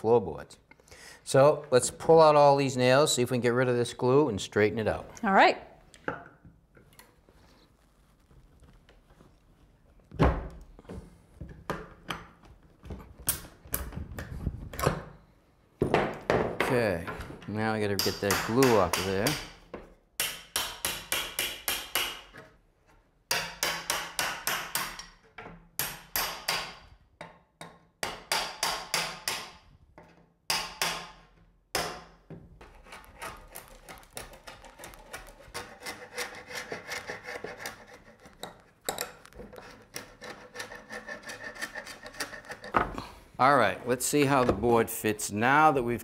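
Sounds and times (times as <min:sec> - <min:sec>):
hammer tapping chisel on wood: 0:18.0 - 0:19.5, 0:20.2 - 0:22.2
chisel scraping: 0:32.6 - 0:42.9.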